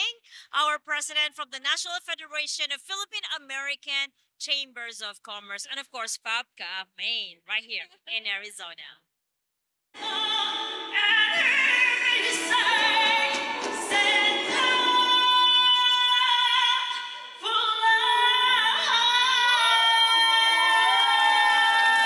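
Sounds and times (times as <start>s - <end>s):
woman singing slow song: 10.0s - 22.0s.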